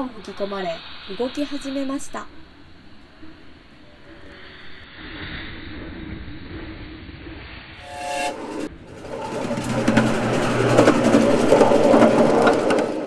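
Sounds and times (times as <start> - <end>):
steam whistle: 7.8 - 10.0
miniature train wheels on rails: 7.8 - 13.0.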